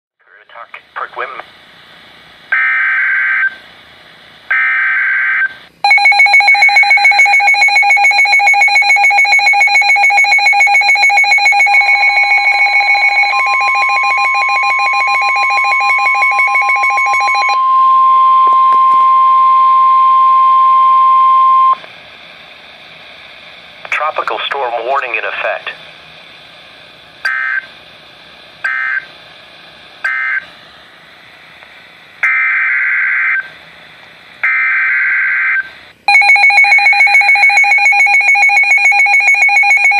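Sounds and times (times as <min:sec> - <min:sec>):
steady warning alarm tone: 0:04.5 - 0:21.9, 0:26.6 - 0:27.8, 0:28.6 - 0:30.5, 0:34.4 - 0:39.9
alarm beeping fast: 0:05.8 - 0:21.8, 0:34.5 - 0:39.9.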